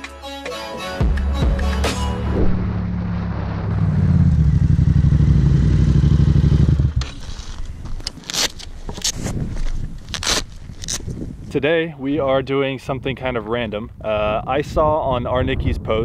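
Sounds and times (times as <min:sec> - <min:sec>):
motorcycle engine running: 0:03.6 - 0:07.7.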